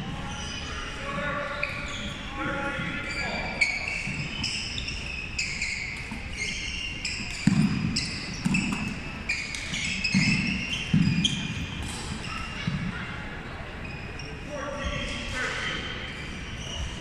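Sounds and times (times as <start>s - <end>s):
shoes squeaking on wooden floor: 0.2s - 12.9s.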